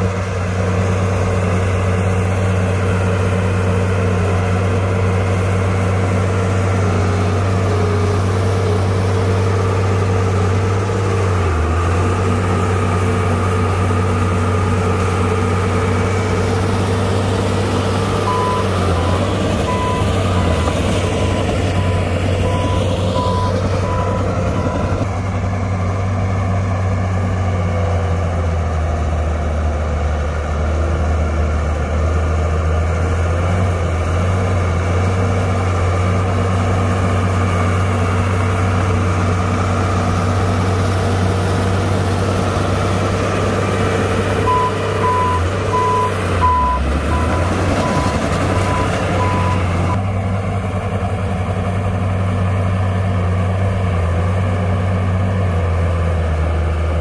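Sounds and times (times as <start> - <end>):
diesel machine engine drone: 0.0 - 57.0
backup alarm beeping: 18.2 - 25.0.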